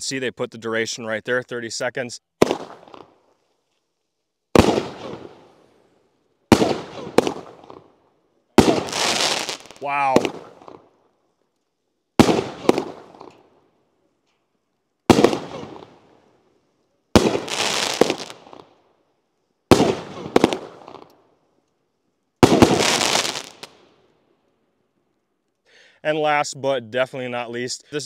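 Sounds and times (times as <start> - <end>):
fireworks firing sharp reports: 2.4 - 3.1, 4.5 - 5.6, 6.5 - 7.9, 8.6 - 10.8, 12.2 - 13.3, 15.1 - 16.0, 17.1 - 18.6, 19.7 - 21.1, 22.4 - 23.7.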